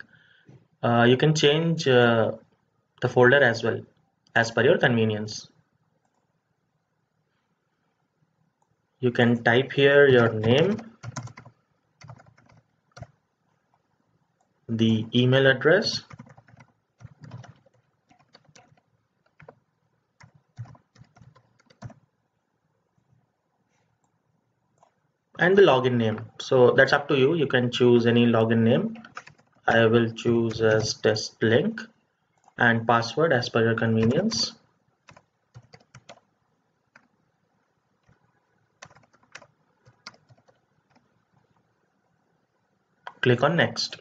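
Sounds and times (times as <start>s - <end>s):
typing on computer keyboard: 10.2s - 13.2s, 15.9s - 19.6s, 20.2s - 22.1s, 28.9s - 29.7s, 34.0s - 36.3s, 36.9s - 37.1s, 38.0s - 38.2s, 38.8s - 41.1s.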